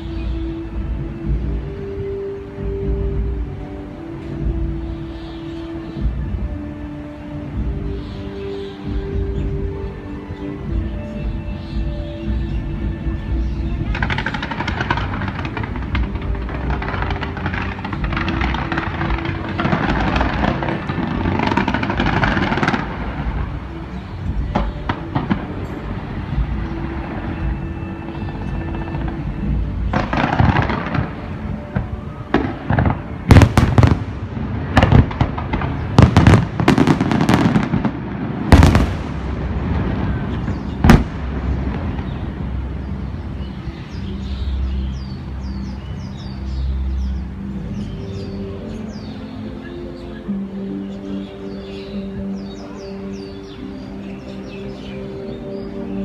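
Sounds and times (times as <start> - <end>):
fireworks bangs: 13.8 - 23.6, 24.4 - 27.6, 28.2 - 42.6
fireworks popping: 13.8 - 23.6, 28.3 - 42.3.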